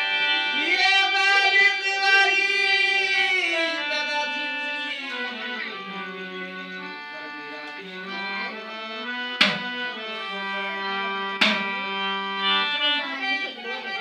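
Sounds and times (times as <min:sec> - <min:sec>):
live music with held notes: 0:00.0 - 0:14.0
sharp percussion strikes: 0:09.4 - 0:09.8, 0:11.4 - 0:11.8.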